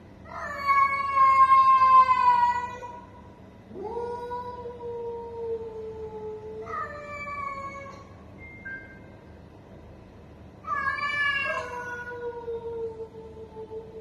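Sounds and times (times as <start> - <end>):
cats yowling: 0.3 - 3.1, 6.6 - 8.1, 10.7 - 13.3.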